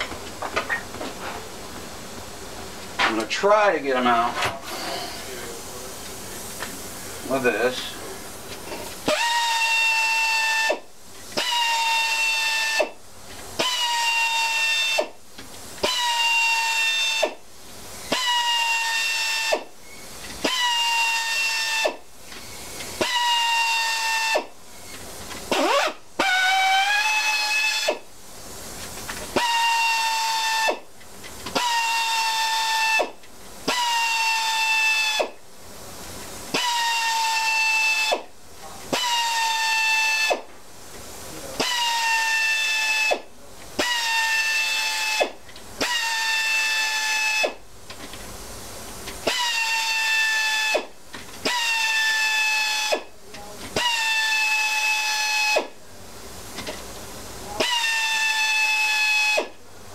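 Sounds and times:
pneumatic air tool whining: 4.4s - 5.4s, 8.7s - 13.0s, 13.6s - 15.2s, 15.8s - 17.4s, 18.0s - 28.1s, 29.1s - 35.4s, 36.5s - 38.3s, 38.9s - 40.5s, 41.6s - 48.2s, 49.1s - 55.8s, 57.5s - 59.6s.

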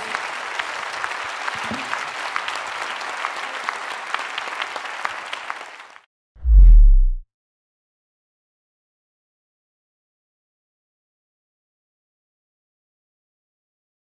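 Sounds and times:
audience applauding: 0.0s - 6.1s
short deep boom: 6.4s - 7.2s.

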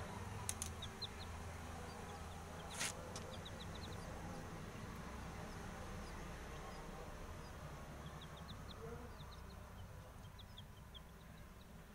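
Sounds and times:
baby chicks cheeping: 0.0s - 11.9s
low steady hum: 0.0s - 11.9s
brief rustle: 2.7s - 3.3s.

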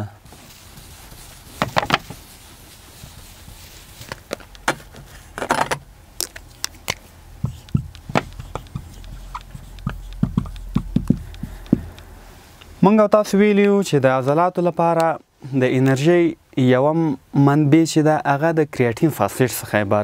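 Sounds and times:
faint low hum: 0.0s - 20.0s
eraser rubbing whiteboard: 0.3s - 5.4s, 6.8s - 12.0s
marker writing on whiteboard: 6.2s - 12.2s.

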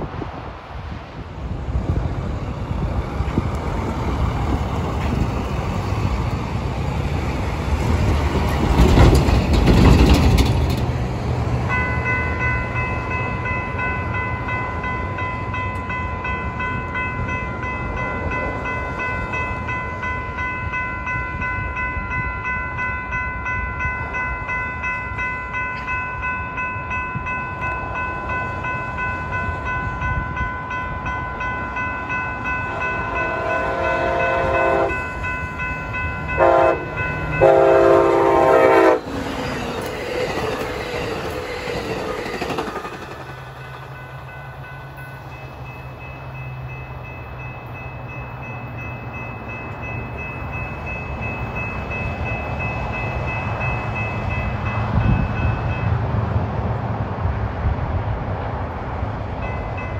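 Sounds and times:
wind rumble on microphone: 0.0s - 10.8s, 54.5s - 59.4s
level crossing warning bell: 11.5s - 43.0s, 43.6s - 56.2s, 59.4s - 59.9s.

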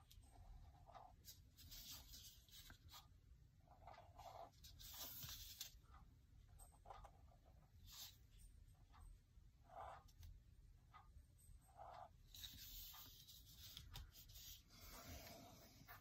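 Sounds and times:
pen scratching on paper: 0.3s - 5.8s, 6.6s - 8.2s, 9.6s - 10.3s, 11.7s - 16.0s.

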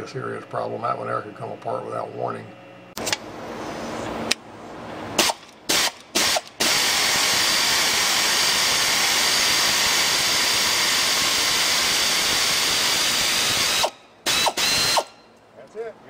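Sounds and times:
air ratchet spinning: 5.2s - 15.2s.

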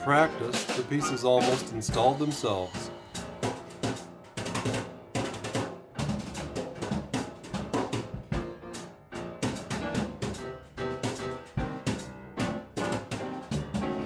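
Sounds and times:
instrumental melody line: 0.0s - 5.1s
drum kit steady beat: 0.0s - 14.0s.

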